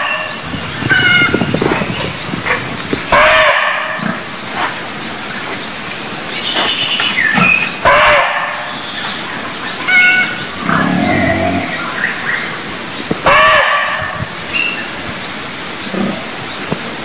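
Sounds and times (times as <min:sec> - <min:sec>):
deer barking: 0:07.8 - 0:08.7, 0:13.3 - 0:14.0.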